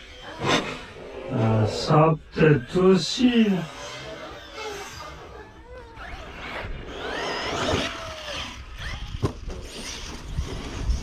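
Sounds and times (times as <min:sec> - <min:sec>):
electric motor whining: 0:02.3 - 0:11.0.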